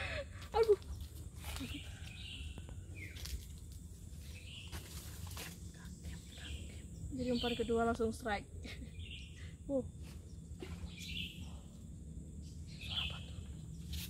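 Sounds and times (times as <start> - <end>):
low background rumble: 0.0 - 14.0
birds calling: 6.0 - 14.0.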